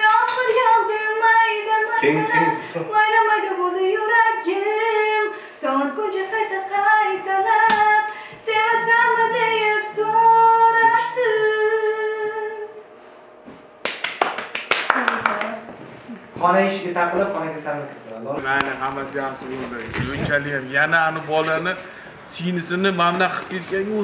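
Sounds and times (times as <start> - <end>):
woman singing unaccompanied: 0.0 - 12.8.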